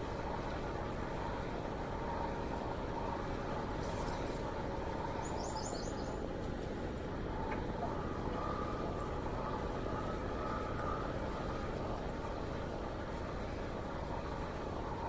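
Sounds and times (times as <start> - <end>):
wind: 0.0 - 15.0
bird chirping: 5.2 - 6.2.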